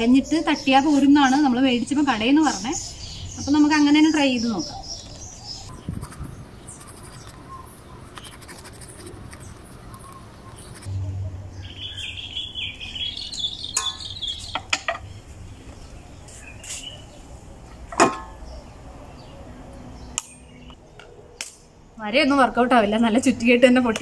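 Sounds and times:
birds chirping: 0.0 - 21.4
eggshell scraping: 8.1 - 10.9.

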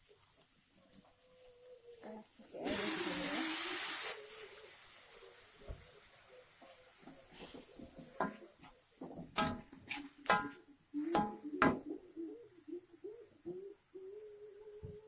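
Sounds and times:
metal utensil clinking on pot: 8.1 - 10.6.

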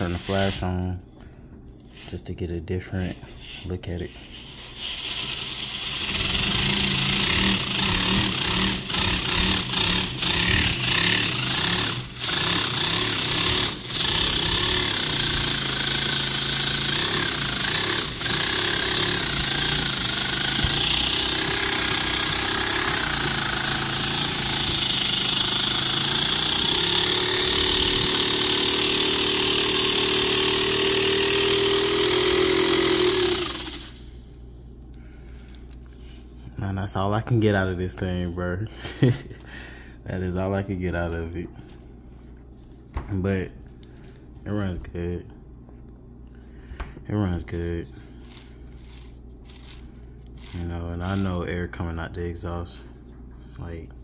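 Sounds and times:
small air engine chattering: 4.8 - 34.0.

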